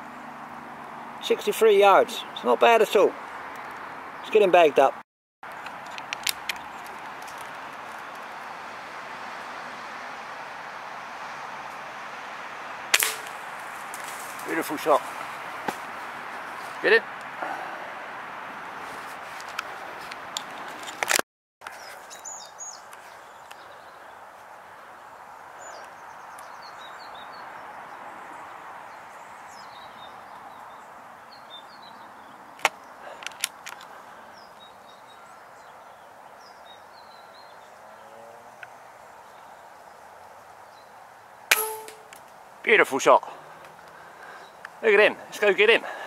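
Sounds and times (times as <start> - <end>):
small birds chirping: 0.0 - 12.4, 21.7 - 46.0
outdoor background hiss: 0.0 - 46.0
air rifle firing: 12.9 - 13.4, 41.5 - 42.1.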